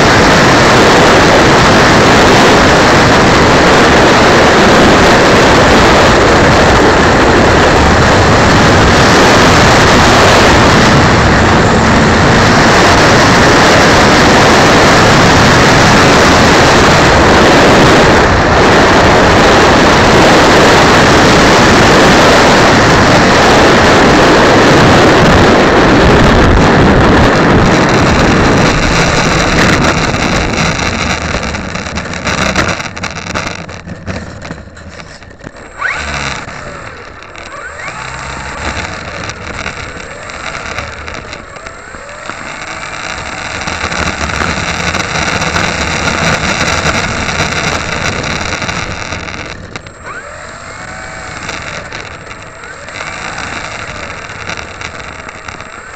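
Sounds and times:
wind rushing: 0:00.0 - 0:34.2
model plane motor whine: 0:00.0 - 0:55.9.

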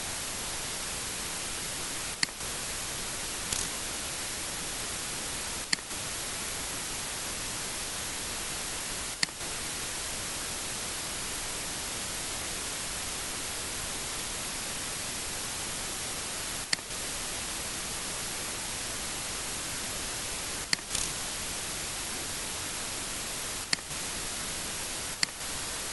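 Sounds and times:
static hiss: 0:00.0 - 0:25.9
sharp clicks: 0:20.6 - 0:21.2, 0:25.2 - 0:25.4.

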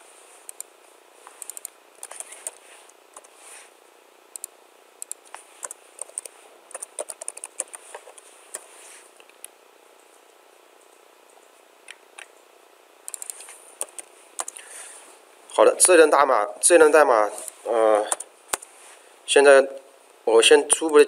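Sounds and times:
computer keyboard typing: 0:01.4 - 0:02.6, 0:03.2 - 0:03.4, 0:04.4 - 0:08.7, 0:13.1 - 0:14.6.

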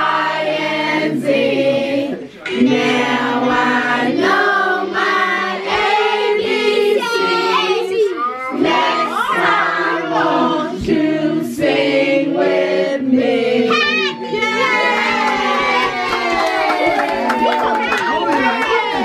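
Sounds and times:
children and adults singing: 0:00.0 - 0:19.0.

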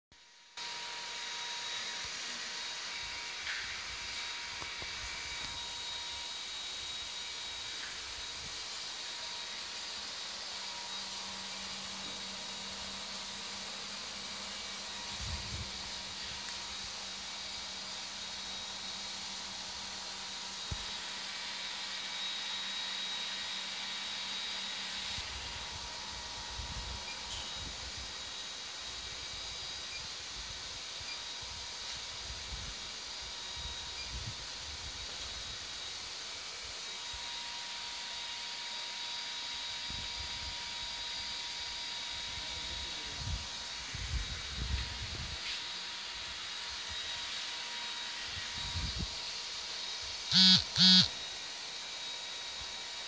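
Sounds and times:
faint high whine: 0:00.2 - 0:53.0
low electrical hum: 0:50.2 - 0:51.2.

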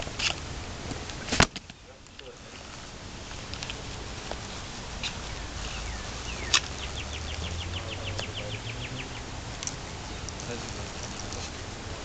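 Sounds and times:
bird chirps: 0:05.0 - 0:10.8
songbird trilling: 0:05.0 - 0:11.0.

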